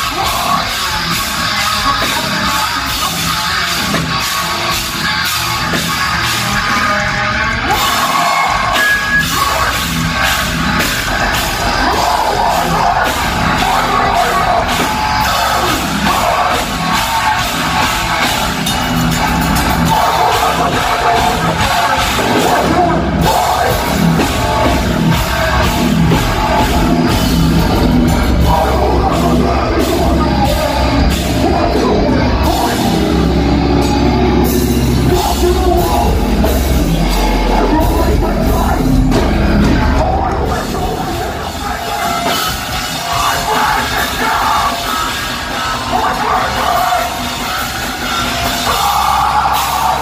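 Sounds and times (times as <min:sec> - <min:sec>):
live heavy metal band playing: 0:00.0 - 0:50.0.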